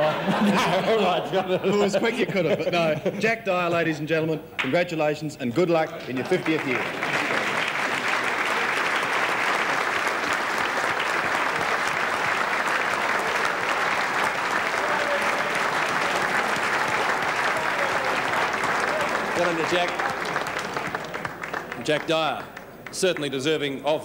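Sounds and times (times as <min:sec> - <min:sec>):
audience applauding: 0:06.0 - 0:23.8.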